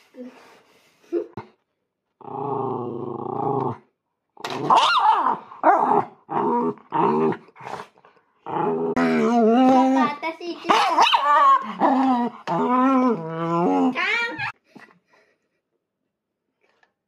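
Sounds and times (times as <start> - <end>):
dog growling: 2.2 - 3.9, 4.5 - 14.0
dog barking: 10.7 - 11.6.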